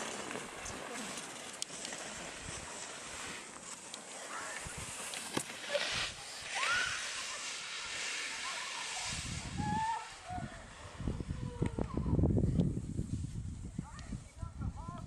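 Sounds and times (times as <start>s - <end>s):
skis scraping over snow: 0.0s - 11.2s.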